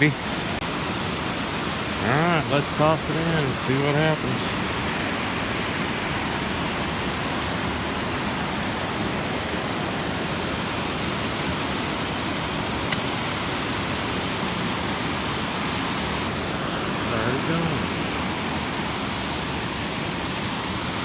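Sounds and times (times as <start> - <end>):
water rushing from spillway: 0.0 - 21.0
sharp click: 12.9 - 13.1.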